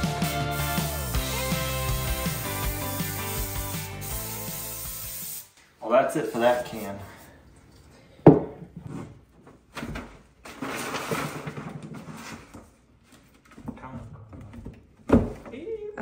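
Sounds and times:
cardboard sheets rustling and scraping: 0:09.9 - 0:13.5.

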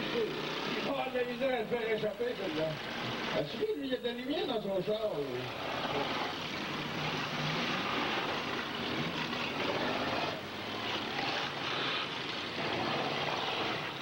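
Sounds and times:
car engines running: 0:00.0 - 0:03.6, 0:05.2 - 0:14.0.

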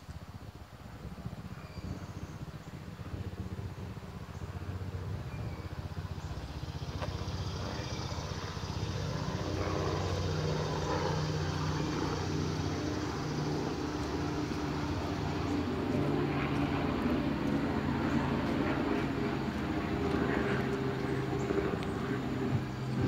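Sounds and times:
engine drone: 0:00.0 - 0:23.0.

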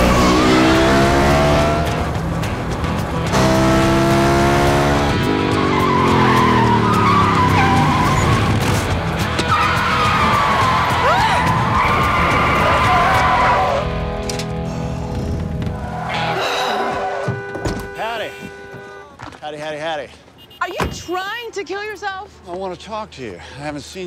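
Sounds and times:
motorcycle engine revving: 0:00.0 - 0:09.5
film score music: 0:00.0 - 0:17.4
tyres squealing: 0:05.6 - 0:13.9.

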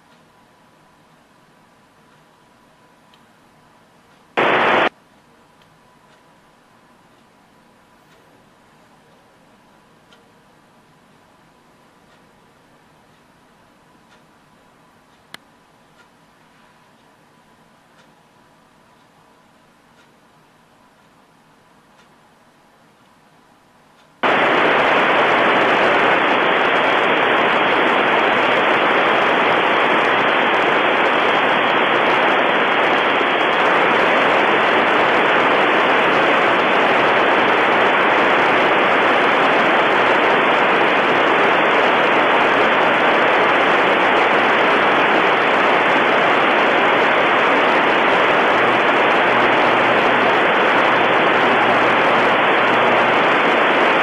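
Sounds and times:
radio receiver static: 0:04.4 - 0:04.9, 0:24.2 - 0:54.0.

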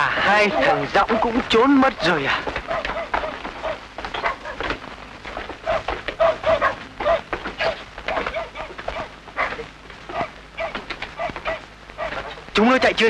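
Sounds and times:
dogs barking: 0:00.2 - 0:04.8, 0:05.6 - 0:13.0.

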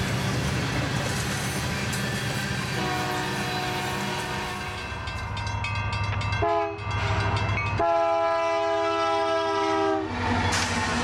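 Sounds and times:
locomotive air horn blasts: 0:02.8 - 0:04.8, 0:06.4 - 0:07.2, 0:07.8 - 0:10.2.

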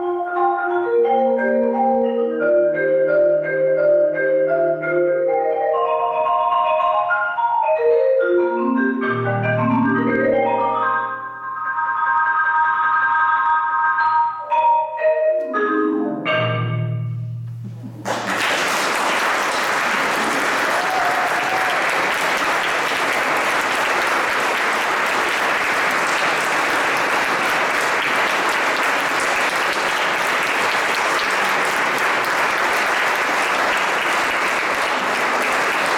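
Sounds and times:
audience applauding: 0:17.7 - 0:35.9.

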